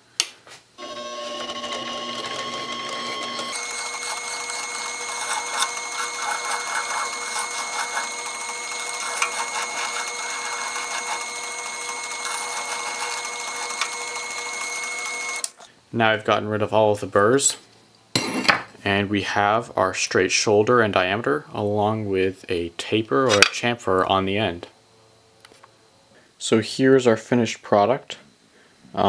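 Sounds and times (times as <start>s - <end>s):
file scraping spinning metal: 0.8s - 15.4s
lathe motor whine: 0.8s - 15.5s.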